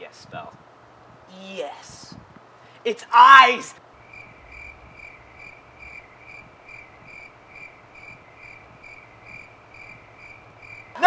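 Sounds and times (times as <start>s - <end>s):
cricket chirping: 3.9s - 11.0s.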